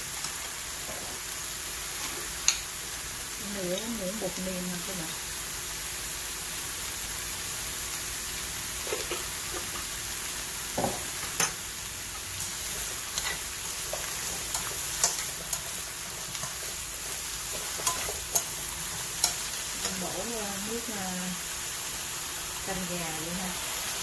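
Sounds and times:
food sizzling in frying pan: 0:00.0 - 0:24.0
chopsticks clicking against pan: 0:13.2 - 0:16.7, 0:17.5 - 0:20.0.

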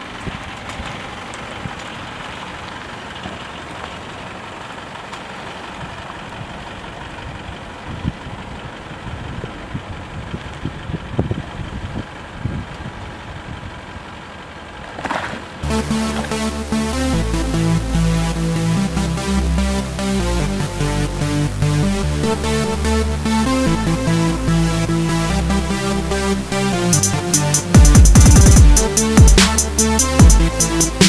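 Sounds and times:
pickup truck engine running: 0:00.0 - 0:31.0
electronic music: 0:15.6 - 0:31.0.

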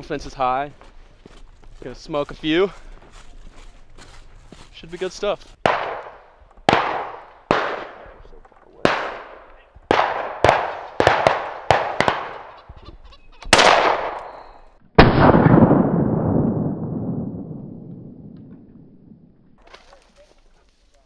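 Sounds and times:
shotgun shots: 0:05.6 - 0:12.6, 0:13.5 - 0:18.6.

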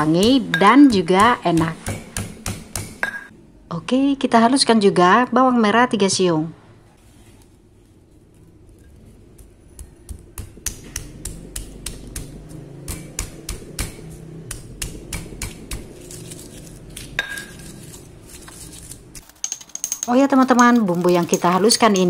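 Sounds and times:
stone pestle pounding in mortar: 0:00.0 - 0:03.3, 0:09.4 - 0:16.4.

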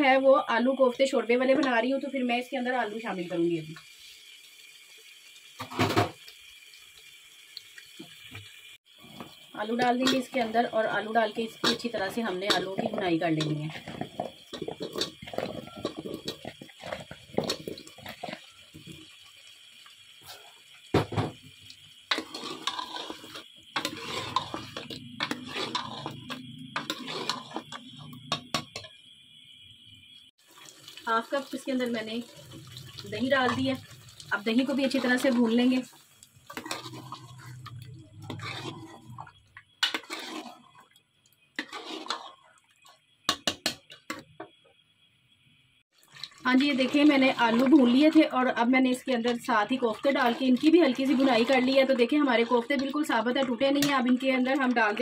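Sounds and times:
ladle stirring thick food in pot: 0:09.0 - 0:19.2, 0:22.1 - 0:29.0, 0:32.2 - 0:41.0, 0:41.6 - 0:44.2, 0:46.0 - 0:55.0.

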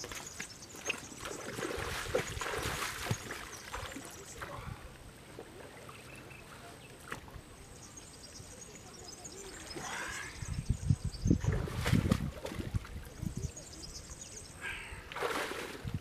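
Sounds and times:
water splashing and pouring: 0:00.0 - 0:04.6, 0:15.1 - 0:16.0.

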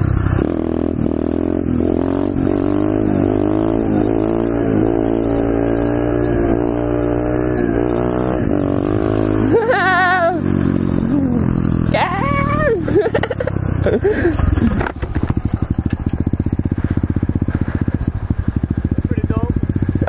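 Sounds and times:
motorbike engine revving: 0:00.0 - 0:20.0.

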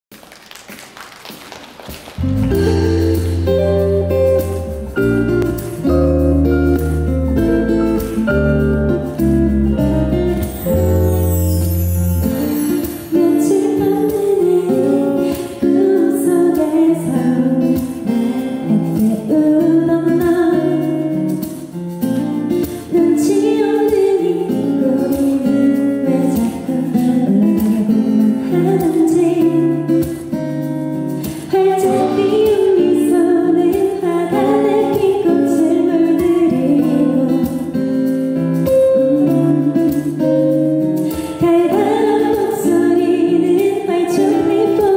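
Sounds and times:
guitar accompaniment: 0:00.2 - 0:44.9
woman singing a pop ballad: 0:12.9 - 0:21.4, 0:22.6 - 0:30.4, 0:31.0 - 0:44.9.

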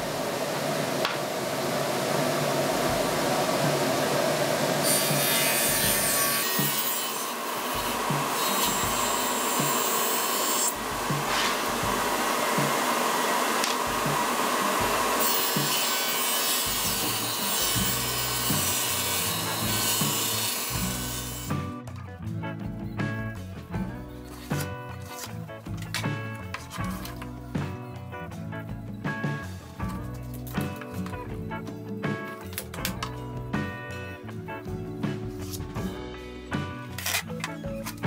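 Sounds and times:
table saw cutting plywood: 0:00.8 - 0:21.7.

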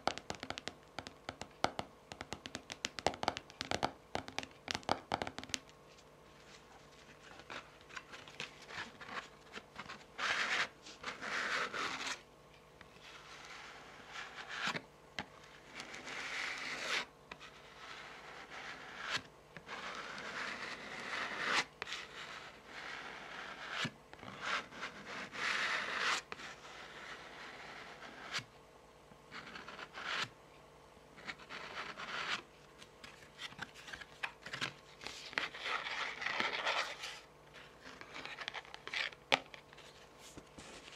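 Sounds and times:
cards sliding and scraping: 0:05.9 - 0:12.2, 0:15.4 - 0:28.5, 0:31.2 - 0:40.9
fingernails scratching cards: 0:07.3 - 0:12.2.

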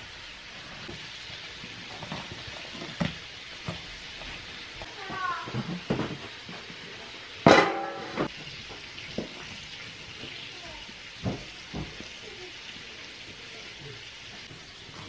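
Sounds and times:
metal pan ringing: 0:07.5 - 0:08.3.

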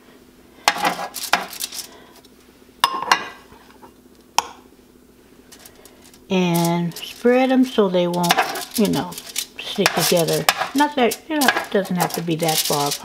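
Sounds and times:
metal spoon scraping: 0:00.7 - 0:01.9, 0:08.1 - 0:13.0
spoon clinking on baking sheet: 0:08.1 - 0:13.0.

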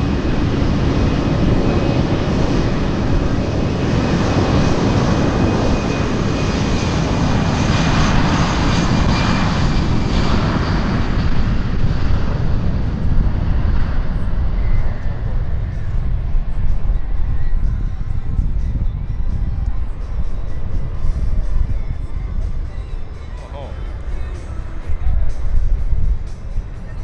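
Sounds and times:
jet engines at high power: 0:00.0 - 0:27.0.

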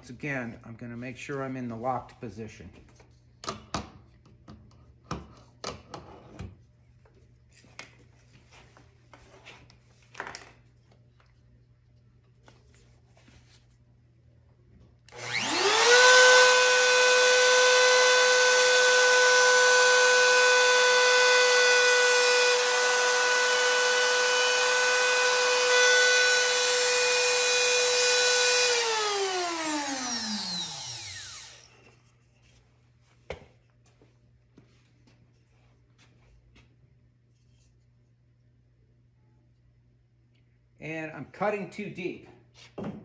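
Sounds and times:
router motor whine: 0:15.1 - 0:31.8.

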